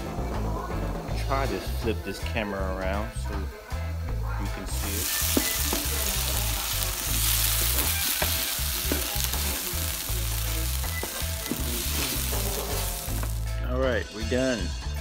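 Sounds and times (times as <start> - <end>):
vegetables sizzling in a frying pan: 4.4 - 13.5
wooden spoon scraping a pan: 4.8 - 13.4.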